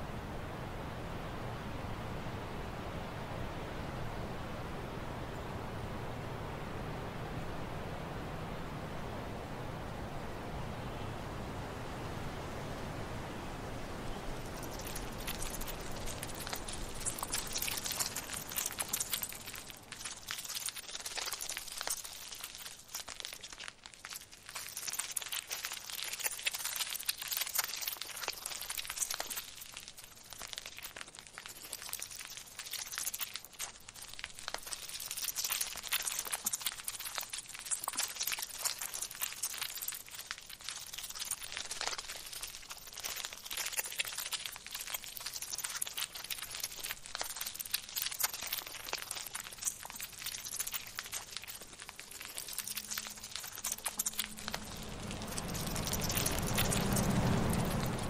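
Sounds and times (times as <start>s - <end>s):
insects crackling and scratching: 14.2s - 58.0s.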